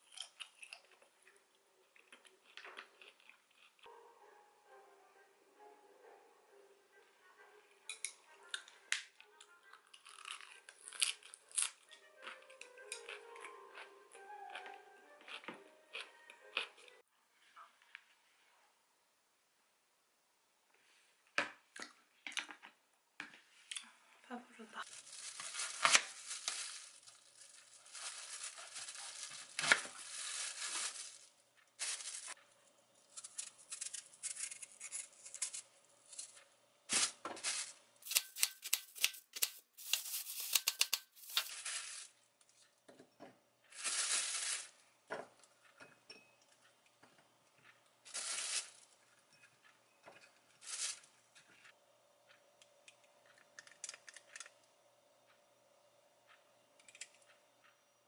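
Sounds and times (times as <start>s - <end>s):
plastic sheeting crinkling: 24.8s - 32.4s, 36.9s - 42.1s, 43.7s - 44.8s, 50.6s - 51.1s
knife cutting apple: 38.0s - 41.5s.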